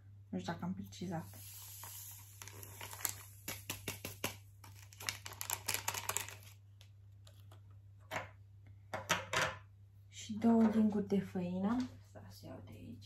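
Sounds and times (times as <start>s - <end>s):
foil sachet crinkling: 1.4s - 7.6s.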